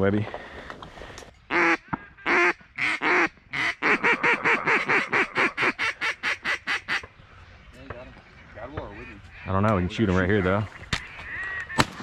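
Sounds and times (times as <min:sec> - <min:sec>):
duck call quacks: 0:01.5 - 0:07.0.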